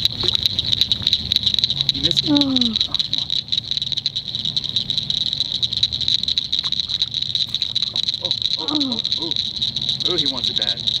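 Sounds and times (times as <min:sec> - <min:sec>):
frogs and insects trilling: 0:00.0 - 0:11.0.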